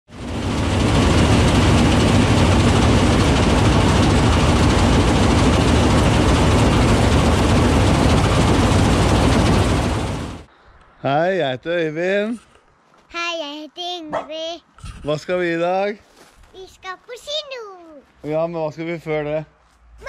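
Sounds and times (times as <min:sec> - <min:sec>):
combine harvester running: 0:00.1 - 0:10.5.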